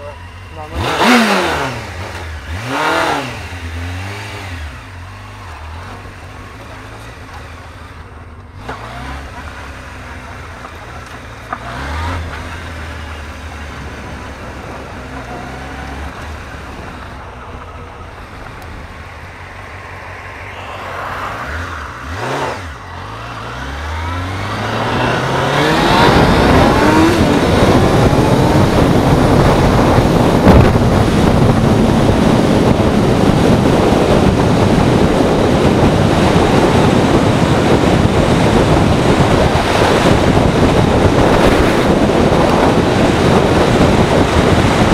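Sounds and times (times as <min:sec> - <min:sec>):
motorcycle engine revving: 0:00.0 - 0:44.9
wind rushing on microphone: 0:13.8 - 0:44.9.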